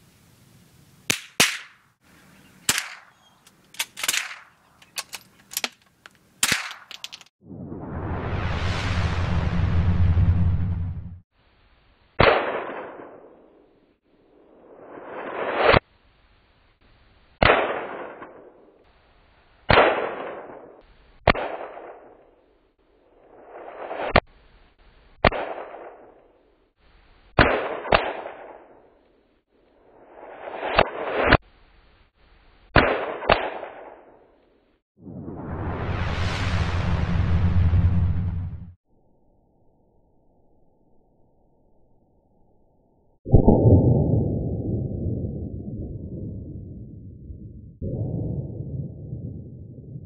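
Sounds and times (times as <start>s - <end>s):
rifle shots echoing: 1.1s - 1.8s, 2.7s - 3.2s, 3.8s - 4.6s.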